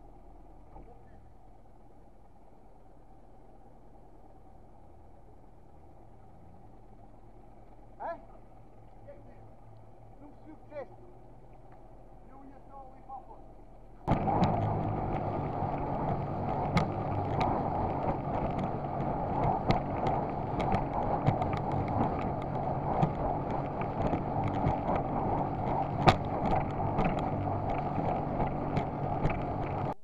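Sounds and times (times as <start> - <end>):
outboard motor running: 0.0 - 30.0
hull slapping choppy water: 14.1 - 30.0.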